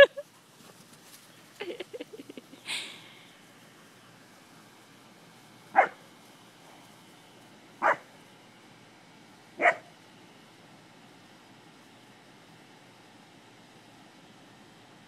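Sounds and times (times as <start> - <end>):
dog barking: 5.7 - 6.0, 7.8 - 8.1, 9.6 - 9.9.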